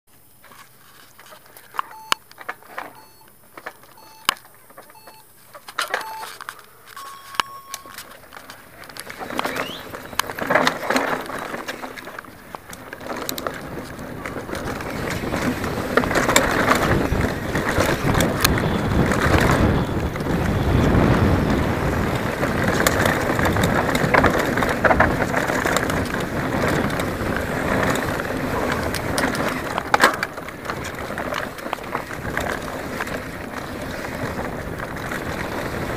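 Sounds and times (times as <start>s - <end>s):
start timer beeps: 1.8s - 2.2s, 2.8s - 8.0s
mountain bike rattling on dirt trail: 2.4s - 35.9s
wind noise on microphone: 13.0s - 35.9s.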